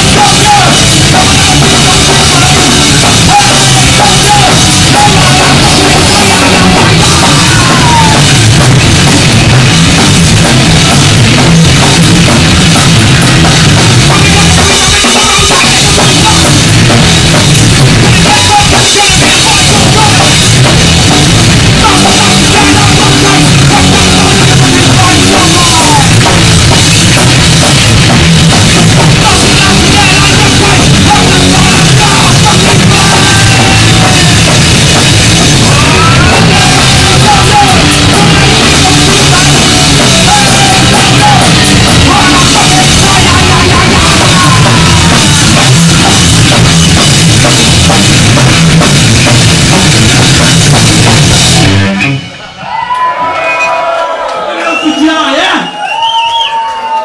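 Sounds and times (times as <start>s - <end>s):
punk band playing: 0.0s - 53.9s
person shouting vocals: 3.4s - 8.3s, 29.2s - 34.5s, 35.6s - 45.3s.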